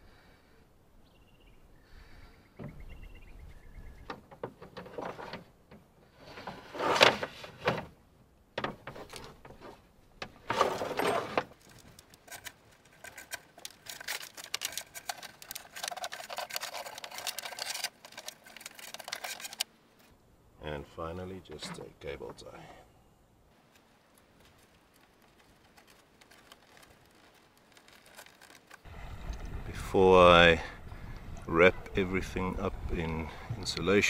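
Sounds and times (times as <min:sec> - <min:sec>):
cables scraping on wood: 0:04.6 - 0:07.8, 0:08.8 - 0:20.1, 0:24.2 - 0:29.6.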